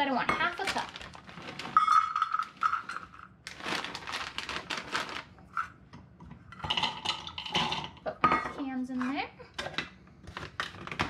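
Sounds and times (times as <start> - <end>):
plastic bag crinkling: 0.5 - 5.6.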